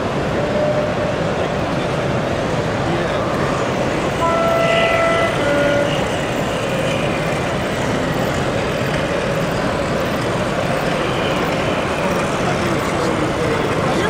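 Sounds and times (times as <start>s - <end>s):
two-tone model train horn: 4.2s - 6.7s.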